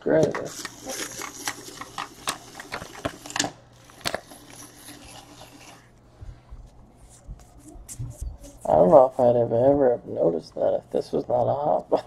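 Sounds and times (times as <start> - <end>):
card pack wrapper crinkling: 0.4 - 5.8.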